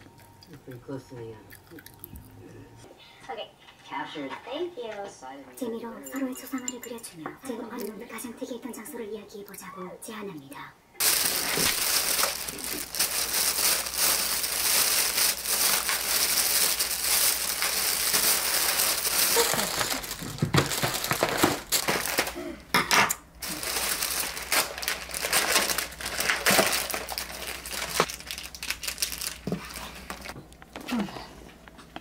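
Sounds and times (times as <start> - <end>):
plastic bag rustling: 11.0 - 22.4, 23.4 - 30.4
plastic containers clicking: 19.2 - 22.3.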